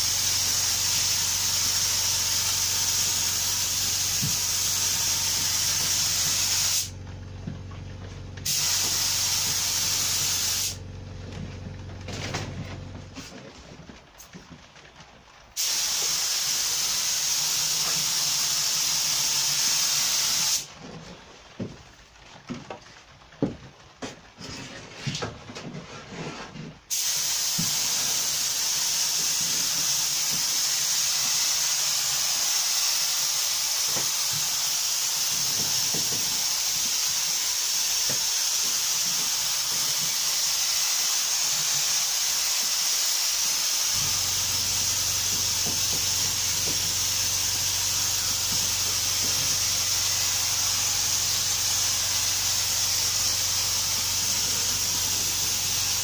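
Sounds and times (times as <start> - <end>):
spray gun hissing: 0.0 - 7.0, 8.4 - 10.8, 15.6 - 20.7, 26.9 - 56.0
low steady hum: 6.9 - 10.1, 10.8 - 15.4.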